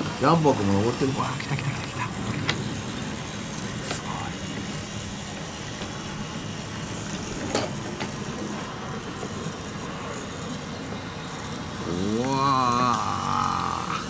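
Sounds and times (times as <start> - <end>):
toy train motors whirring: 0.0 - 14.0
wheels rumbling on wooden track: 0.0 - 14.0.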